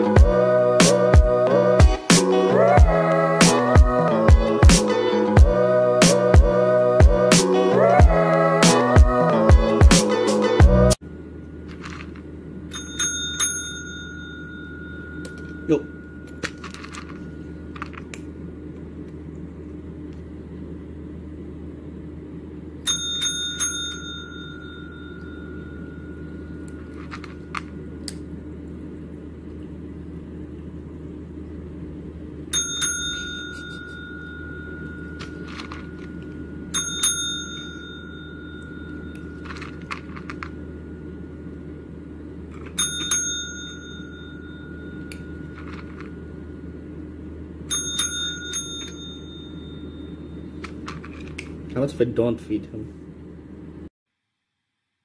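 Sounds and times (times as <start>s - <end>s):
steady low hum: 0.0s - 53.9s
service bell ringing: 12.7s - 17.6s, 22.8s - 27.0s, 32.5s - 42.0s, 42.6s - 46.8s, 47.7s - 50.6s.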